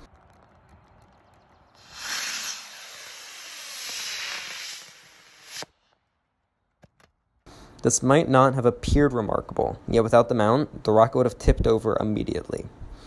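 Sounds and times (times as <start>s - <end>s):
rocket motor rushing hiss: 1.8s - 6.0s.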